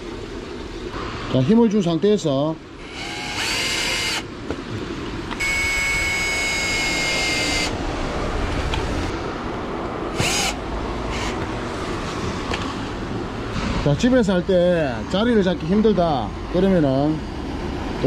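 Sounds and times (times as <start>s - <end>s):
power drill motor whining: 2.8s - 4.3s, 5.4s - 7.8s, 10.1s - 11.4s.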